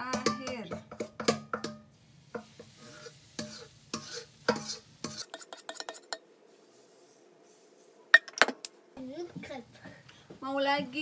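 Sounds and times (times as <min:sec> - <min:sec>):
utensil scraping metal bowl: 0:00.0 - 0:07.9
faint batter sizzle: 0:00.0 - 0:11.0.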